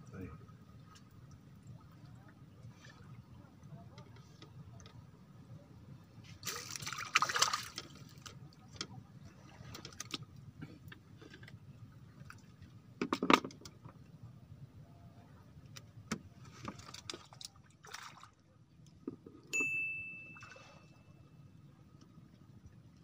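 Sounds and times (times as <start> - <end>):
water splashing: 6.4 - 8.3, 16.9 - 18.4.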